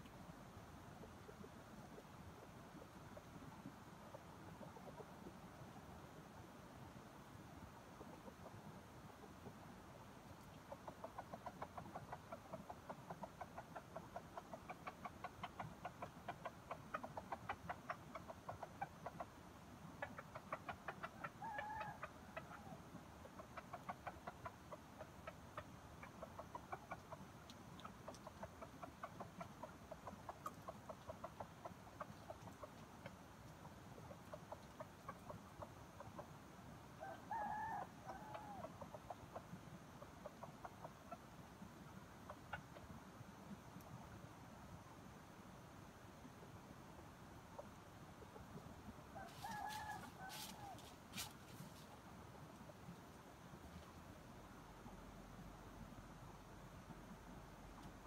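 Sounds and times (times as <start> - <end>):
rooster clucking: 4.1 - 5.4, 10.5 - 36.4, 37.0 - 41.6, 47.5 - 53.2
rooster high calls: 49.2 - 51.0.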